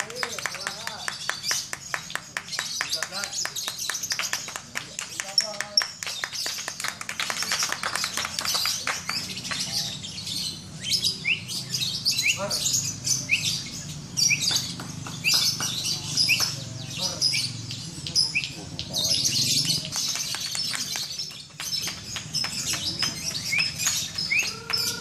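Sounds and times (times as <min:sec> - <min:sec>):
lovebirds chattering: 0:00.0 - 0:25.0.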